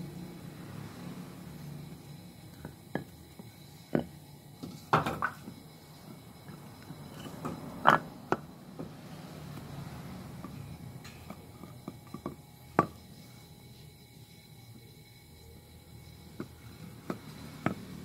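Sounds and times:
wooden blocks knocking on concrete: 2.6s - 4.2s, 7.2s - 8.9s, 11.3s - 13.0s, 16.4s - 18.0s.

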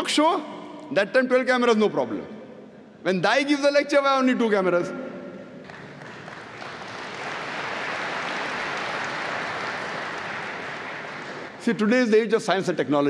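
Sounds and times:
large audience applauding: 5.6s - 11.6s.

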